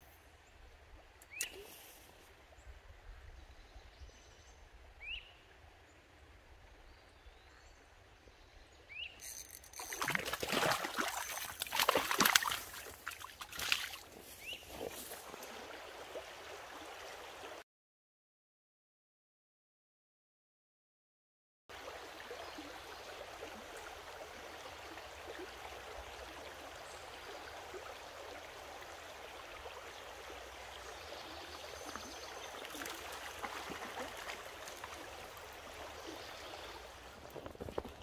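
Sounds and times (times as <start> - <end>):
stream water over rocks: 9.2 - 17.6, 21.7 - 38.0.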